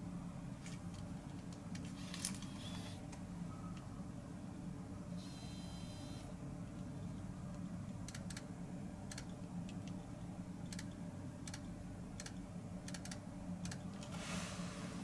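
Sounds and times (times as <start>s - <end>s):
steady low hum: 0.0s - 15.0s
hiss: 14.1s - 15.0s.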